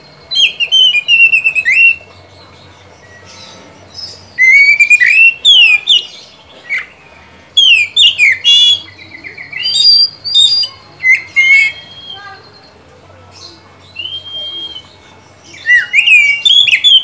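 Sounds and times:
bird singing whistled phrases: 0.3 - 2.1, 3.9 - 7.0, 7.6 - 12.8, 13.8 - 17.0.

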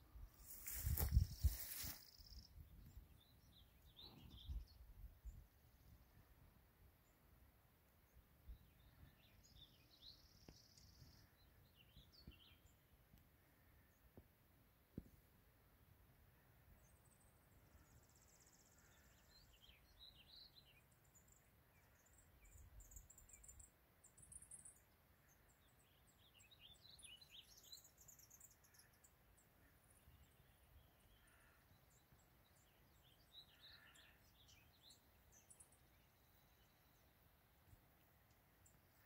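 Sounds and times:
faint bird chirps: 16.4 - 39.0.

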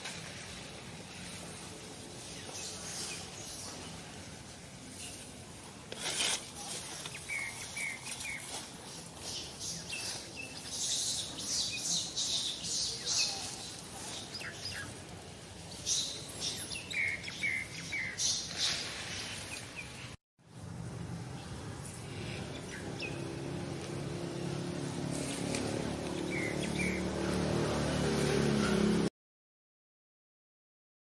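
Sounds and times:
birds chirping: 6.8 - 20.2, 21.3 - 29.1.

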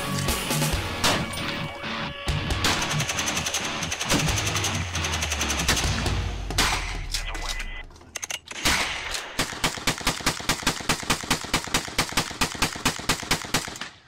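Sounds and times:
rifle shots: 2.6 - 7.3, 8.5 - 14.0.

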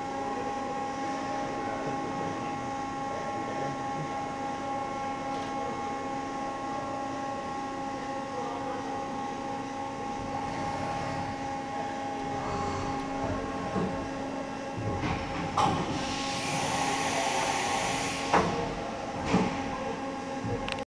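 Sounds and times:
machining center spindle whine: 0.0 - 20.8
mechanical hiss: 15.9 - 18.7.

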